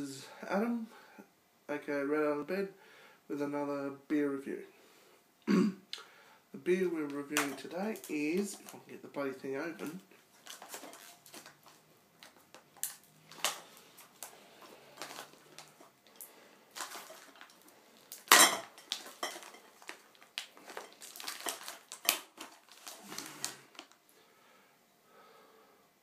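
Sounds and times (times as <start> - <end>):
hard objects clicking and clinking: 7.3 - 8.8, 15.0 - 24.0.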